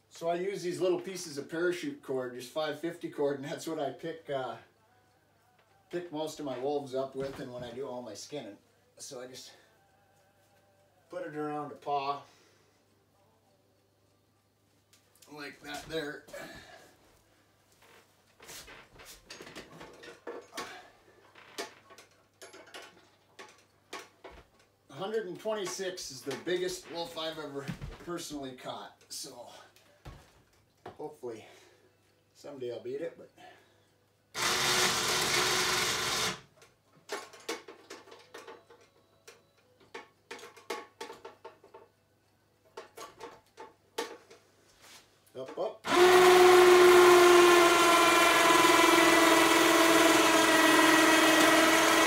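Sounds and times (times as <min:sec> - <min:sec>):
winch motor running: 0:45.9 - 0:52.0.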